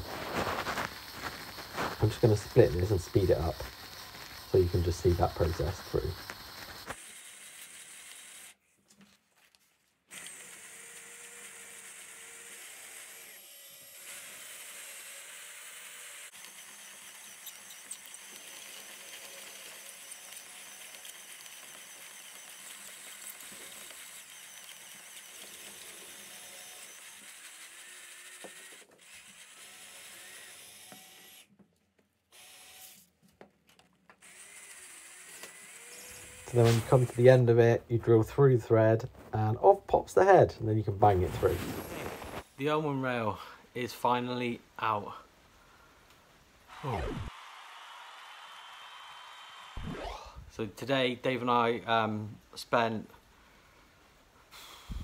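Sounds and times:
electric drill drilling metal: 0.0 - 8.6, 10.1 - 31.5, 32.3 - 33.0, 34.2 - 37.4, 46.7 - 50.4.

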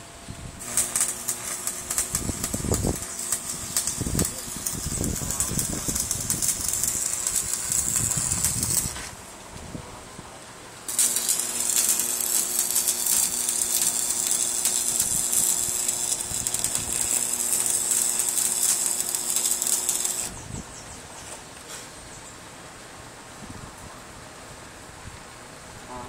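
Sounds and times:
arc welding crackling sizzle: 0.6 - 9.2, 10.9 - 20.4.

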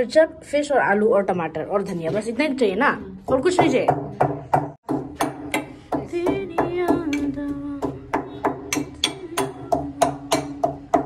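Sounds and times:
pestle pounding in metal mortar: 3.2 - 7.2, 7.8 - 11.0.

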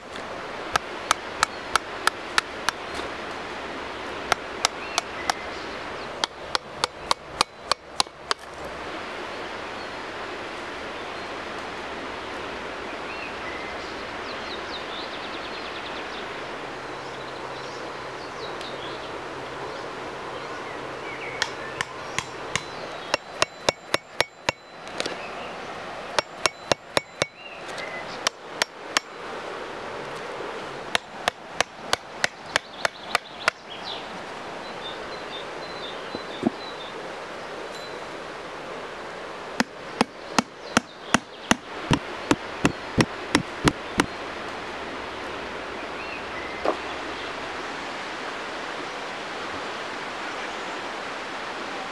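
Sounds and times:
sharp wooden knocks: 6.2 - 8.4, 21.8 - 24.6, 26.2 - 27.4, 39.6 - 44.1
steady rushing noise: 38.3 - 45.7.

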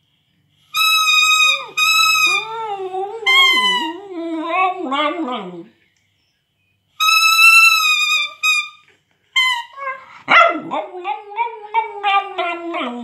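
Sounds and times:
dog howling and yelping: 1.6 - 5.7, 9.7 - 13.0.

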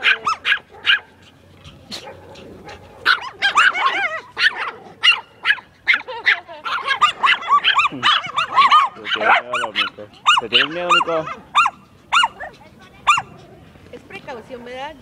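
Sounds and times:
small dog yapping: 0.0 - 13.5.

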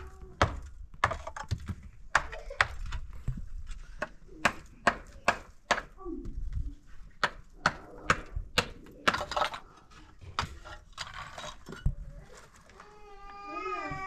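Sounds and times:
child crying: 12.7 - 14.0.

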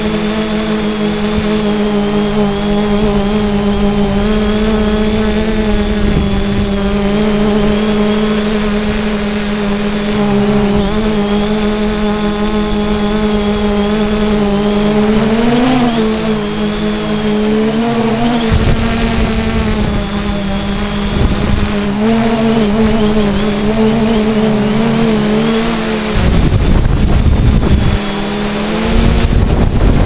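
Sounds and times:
drone propellers humming: 0.0 - 30.0
low microphone rumble: 18.2 - 23.7, 26.2 - 28.1.

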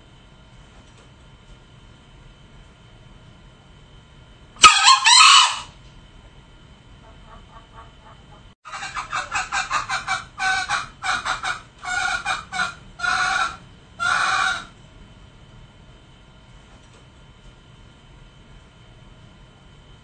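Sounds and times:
junglefowl calling: 4.6 - 5.8, 7.0 - 14.8.

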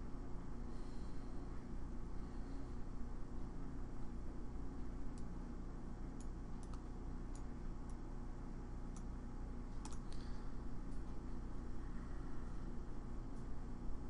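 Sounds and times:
steady low hum: 0.0 - 14.0
computer mouse clicks: 6.2 - 8.0, 8.9 - 9.1, 9.8 - 10.2.

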